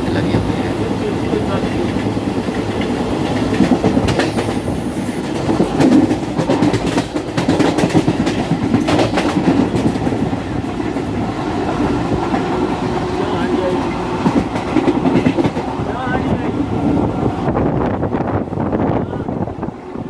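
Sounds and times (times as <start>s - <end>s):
train wheels rumbling on rails: 0.0s - 20.0s
clatter over rail joints: 1.8s - 11.1s, 14.2s - 15.7s.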